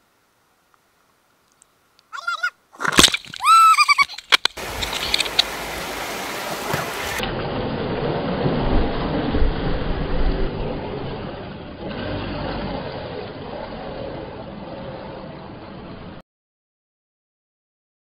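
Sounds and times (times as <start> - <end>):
river rapids rushing: 4.6 - 7.2.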